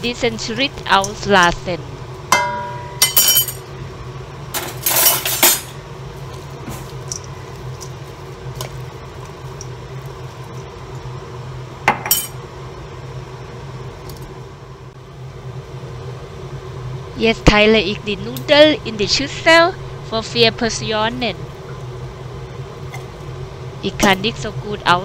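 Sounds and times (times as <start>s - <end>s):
steady low hum: 0.0s - 25.0s
metal tongs clinking against bowl: 2.4s - 3.6s.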